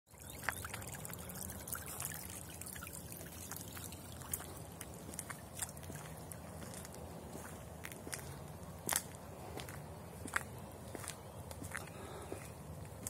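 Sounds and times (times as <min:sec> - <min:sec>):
small splashes and drips: 0:00.1 - 0:07.0
water trickling in ditch: 0:00.1 - 0:13.0.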